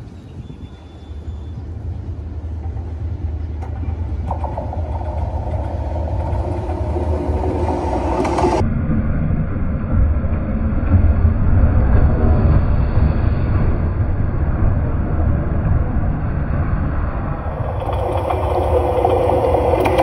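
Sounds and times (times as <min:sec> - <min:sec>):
locomotive engine rumble: 0:00.0 - 0:08.6, 0:17.2 - 0:20.0.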